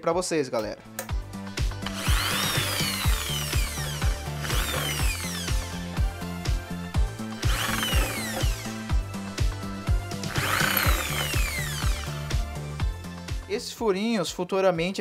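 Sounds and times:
background music with steady beat: 0.0s - 15.0s
electric drill whining through metal: 1.8s - 12.8s.

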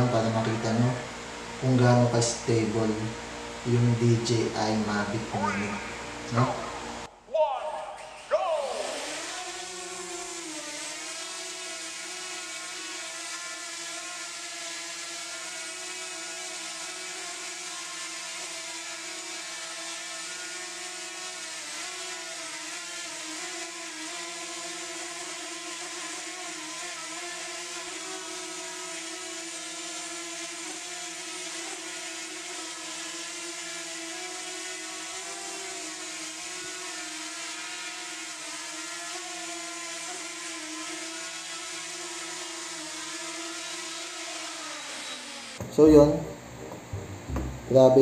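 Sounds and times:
drone propellers whirring: 0.0s - 13.9s, 40.8s - 48.0s.

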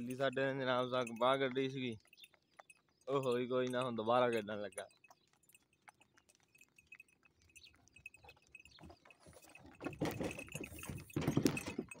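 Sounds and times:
small harness bells jingling: 0.0s - 12.0s
rough noise of moving cart: 8.0s - 12.0s.

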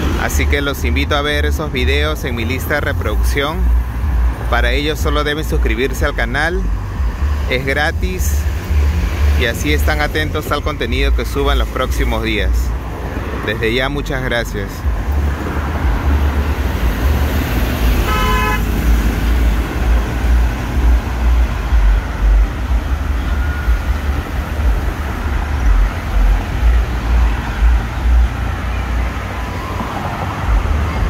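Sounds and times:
road traffic rumble: 0.0s - 31.0s
vehicle horn toot: 17.9s - 18.8s.

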